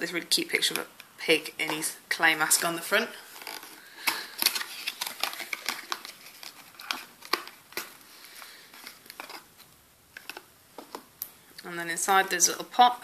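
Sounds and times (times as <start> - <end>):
paperboard carton crinkling: 3.3 - 11.1.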